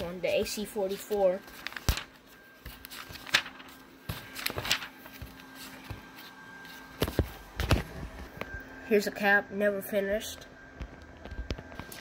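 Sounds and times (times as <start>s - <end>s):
notebook pages turning: 0.0s - 8.5s.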